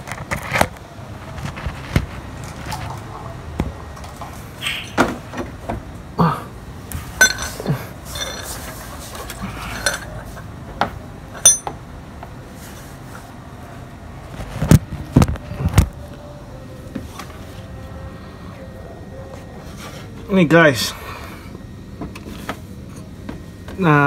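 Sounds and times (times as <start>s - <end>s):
metal tools clinking: 7.2s - 10.4s, 11.4s - 11.8s.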